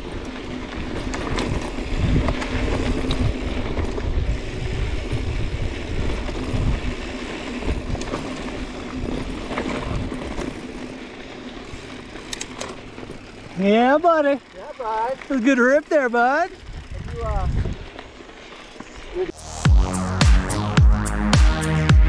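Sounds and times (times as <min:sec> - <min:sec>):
bike knocking and rattling: 0:00.0 - 0:19.3
wind rushing over microphone: 0:01.3 - 0:10.2, 0:16.6 - 0:17.9.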